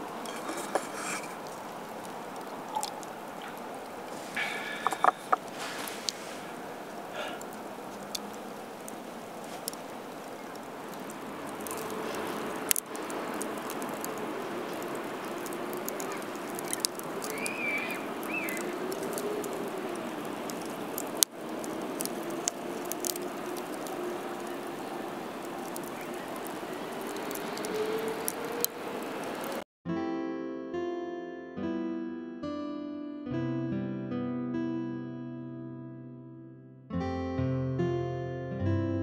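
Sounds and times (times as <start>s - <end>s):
sharp cracks: 0.0s - 29.6s
small crackles: 0.0s - 29.6s
high chirp: 17.3s - 18.7s.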